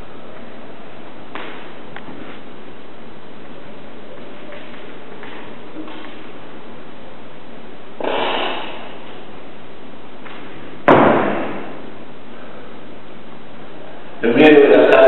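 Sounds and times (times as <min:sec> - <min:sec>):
loud sharp thump with ringing: 0:10.2 - 0:11.8.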